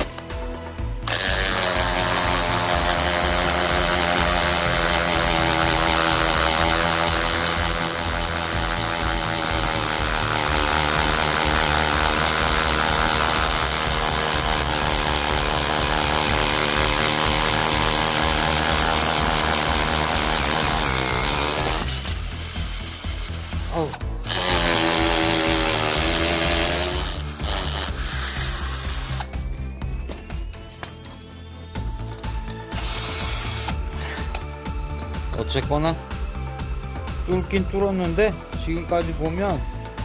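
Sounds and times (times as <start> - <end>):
hammer drill grinding into concrete: 1.0 - 31.0, 32.5 - 34.4.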